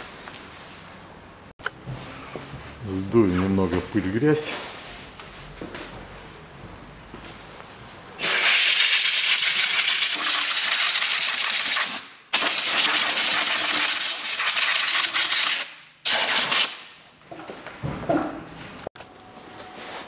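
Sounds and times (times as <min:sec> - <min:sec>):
compressed air blasts: 0:08.2 - 0:17.0.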